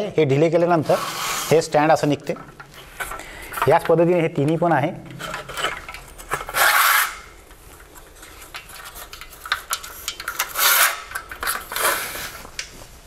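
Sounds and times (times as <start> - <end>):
metal tripod legs rasping: 6.4 - 7.3, 10.1 - 12.4.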